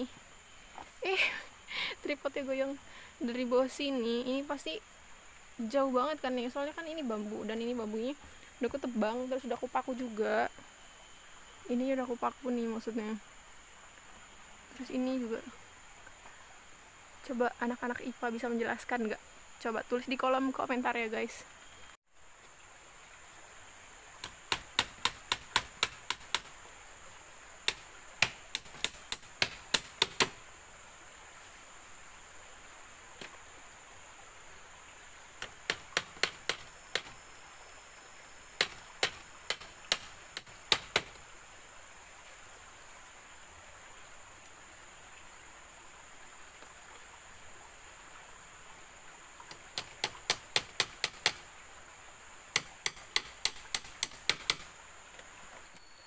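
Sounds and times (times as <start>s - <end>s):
hammer tapping nails: 24.2s - 26.5s, 27.7s - 30.4s, 35.7s - 37.1s, 38.6s - 41.2s, 49.8s - 51.4s, 52.6s - 54.7s.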